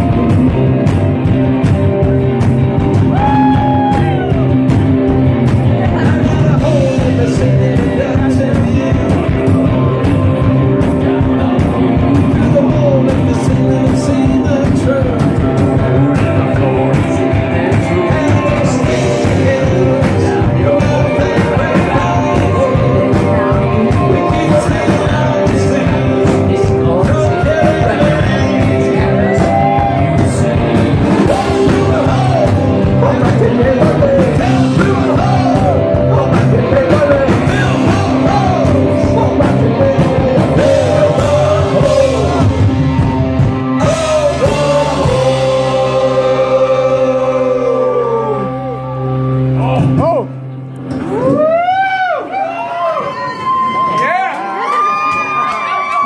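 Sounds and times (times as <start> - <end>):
live rock band playing: 0.0 - 52.5
man singing into a microphone: 5.8 - 50.0.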